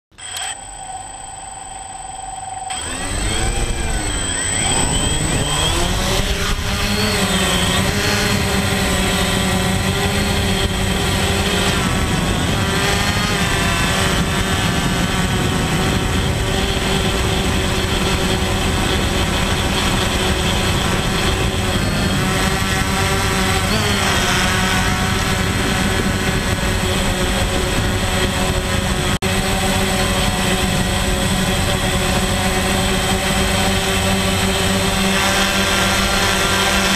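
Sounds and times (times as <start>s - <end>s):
drone propellers buzzing: 0.1s - 36.9s.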